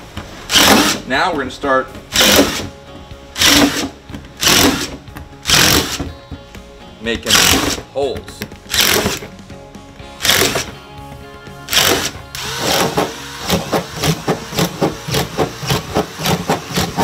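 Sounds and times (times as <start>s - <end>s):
background music with steady beat: 0.0s - 17.0s
drill boring into plastic: 0.5s - 1.0s, 2.2s - 2.7s, 3.4s - 6.1s, 7.3s - 7.8s, 8.7s - 9.2s, 10.2s - 10.7s, 11.7s - 17.0s.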